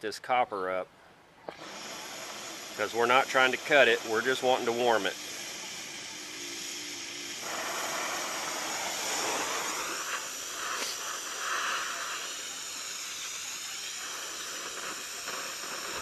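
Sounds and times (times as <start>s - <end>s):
gas torch hissing: 1.5s - 16.0s
torch lighting pop: 7.4s - 16.0s.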